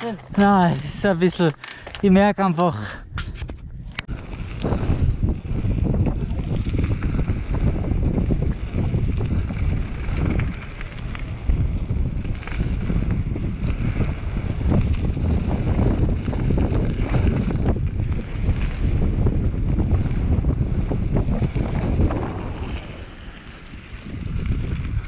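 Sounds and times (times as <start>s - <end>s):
tyres crunching on loose gravel: 0.0s - 25.0s
wind buffeting microphone: 0.0s - 25.0s
bike rattling over bumps: 3.4s - 25.0s.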